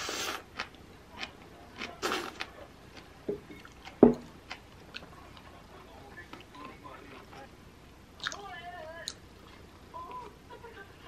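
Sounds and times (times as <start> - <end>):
slurping and chewing: 0.0 - 5.6.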